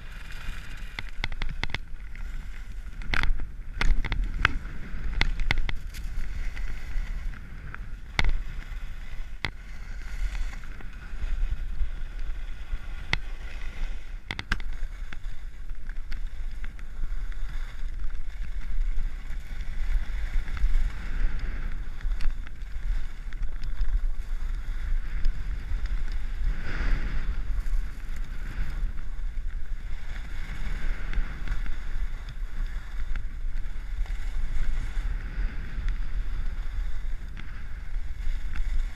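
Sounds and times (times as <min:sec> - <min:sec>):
skis scraping across snow: 0:00.0 - 0:38.9
wind over microphone: 0:00.0 - 0:38.9.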